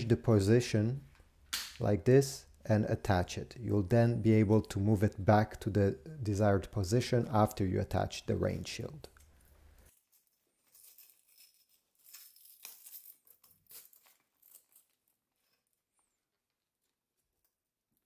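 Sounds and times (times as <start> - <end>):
velcro ripping: 10.7 - 15.2.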